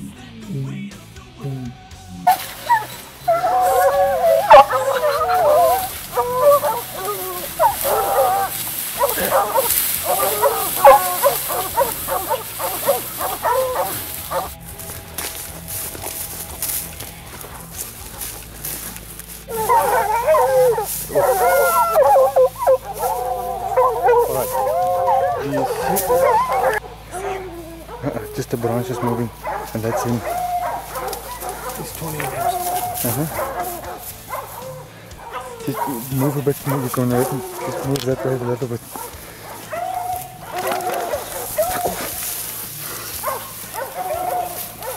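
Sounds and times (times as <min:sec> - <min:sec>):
hounds baying: 0:00.0 - 0:44.9
dog barking: 0:02.2 - 0:14.6, 0:17.6 - 0:44.9.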